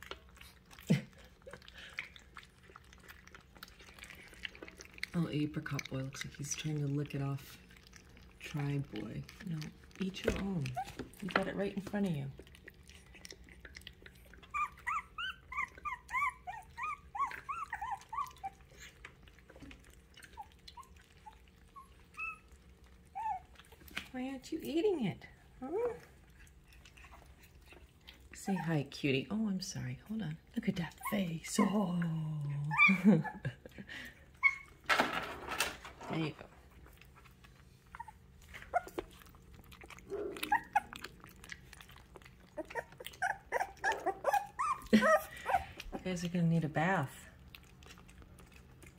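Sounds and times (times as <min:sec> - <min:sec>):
puppy whining: 0:09.6 - 0:11.2, 0:12.4 - 0:23.8, 0:25.5 - 0:28.9, 0:32.5 - 0:34.9, 0:37.6 - 0:46.1.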